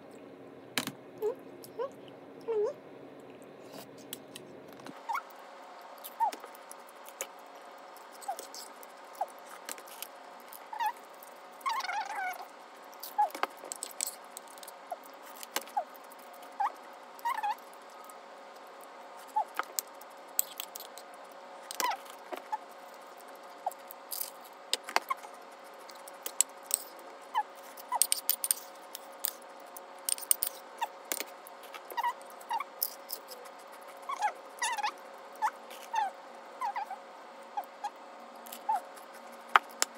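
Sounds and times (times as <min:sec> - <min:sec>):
faint steady hum: 0:00.0 - 0:39.9.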